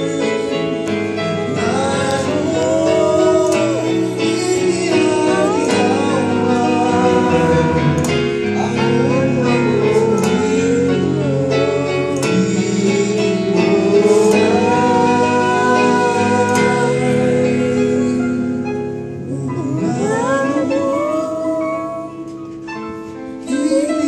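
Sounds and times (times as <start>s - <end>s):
man singing slowly: 0.0s - 22.3s
electronic keyboard: 0.0s - 24.0s.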